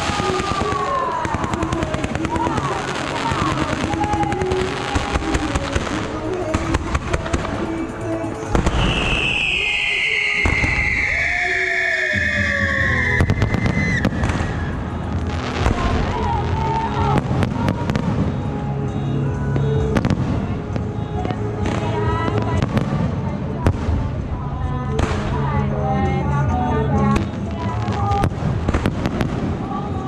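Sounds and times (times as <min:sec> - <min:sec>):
fireworks bangs and crackles: 0:00.0 - 0:25.7, 0:27.0 - 0:30.0
firework whistle: 0:08.6 - 0:20.3.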